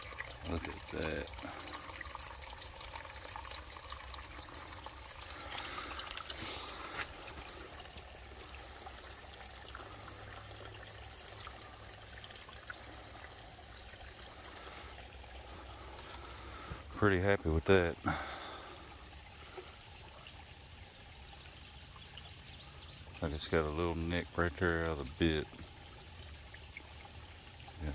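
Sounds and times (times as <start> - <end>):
water lapping at river edge: 0.0 - 23.6.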